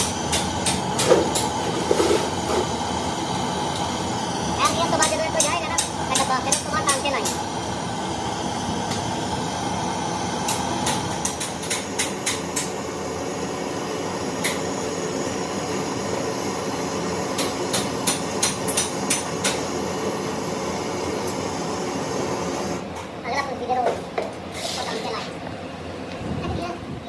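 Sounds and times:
gas torch hissing: 0.0s - 23.0s, 24.5s - 25.3s.

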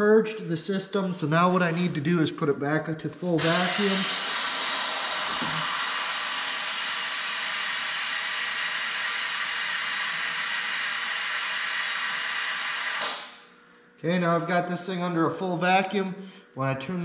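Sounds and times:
compressed air hissing: 3.4s - 13.4s.

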